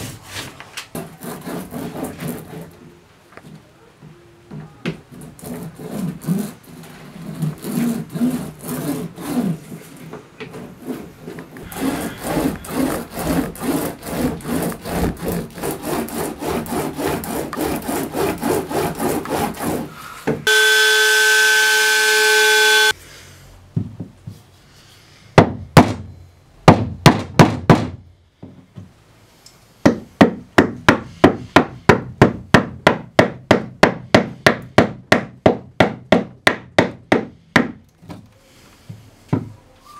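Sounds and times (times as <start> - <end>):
hand tool rubbing fibreglass hull: 5.1 - 20.0
steady whine: 20.5 - 23.0.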